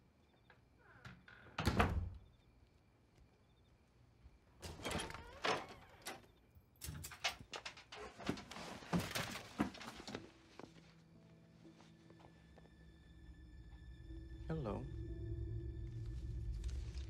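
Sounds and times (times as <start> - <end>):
closet door opening: 0.5 - 2.3, 4.6 - 10.3
rummaging through boxes: 7.4 - 10.6.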